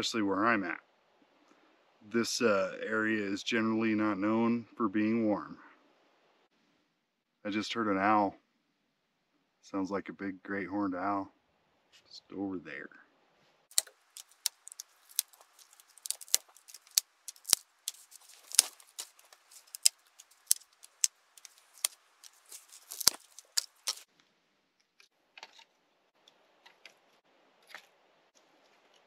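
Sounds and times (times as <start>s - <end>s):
dry sticks snapping: 13.7s - 24.1s
sticks rustling: 13.7s - 24.1s.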